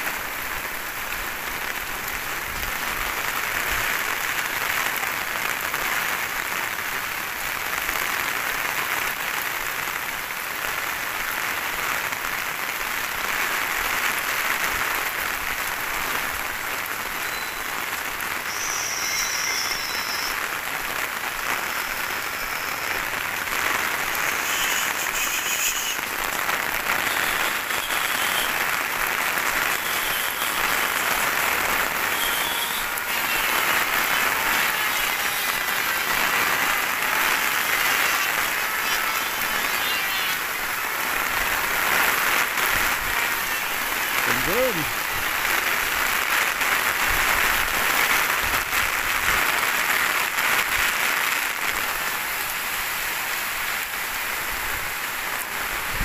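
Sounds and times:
heavy rain on wet street: 0.0s - 56.0s.

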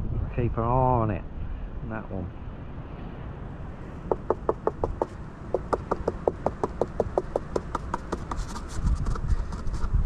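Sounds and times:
knuckles knocking on wooden hive: 4.1s - 8.4s.

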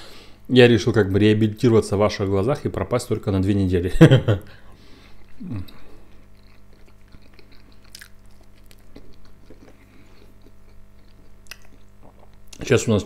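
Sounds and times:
faint electrical hum: 0.0s - 13.0s
person chewing: 4.9s - 12.6s.

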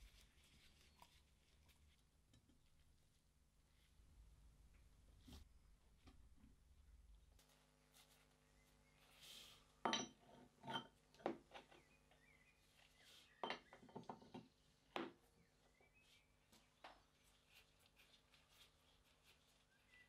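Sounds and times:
light metallic clinks and taps: 9.9s - 11.4s.

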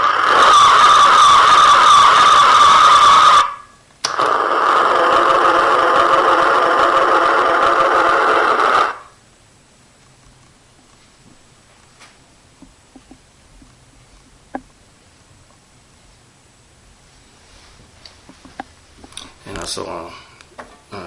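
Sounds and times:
toy electronic sound effects: 0.0s - 9.1s.

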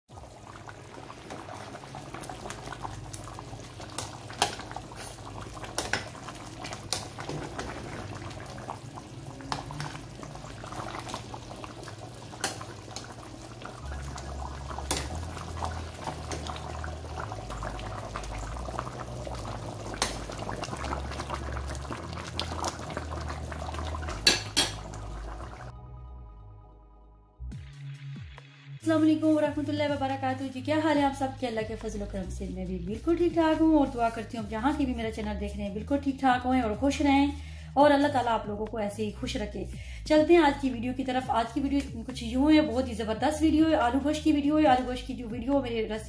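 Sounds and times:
thick curry bubbling: 0.1s - 25.7s
sharp pops and clicks: 19.9s - 20.4s.

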